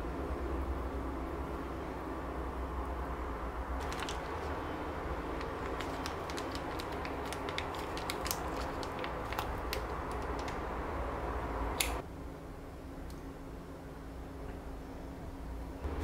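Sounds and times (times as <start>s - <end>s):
low room hum: 0.0s - 16.0s
plastic pouch crinkling: 3.8s - 10.6s.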